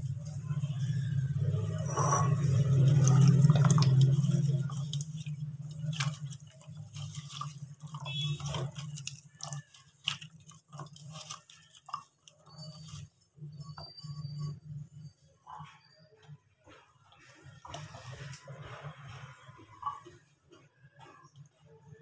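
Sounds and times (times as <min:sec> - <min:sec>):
potato sticks splashing in water: 0:02.3 - 0:13.2.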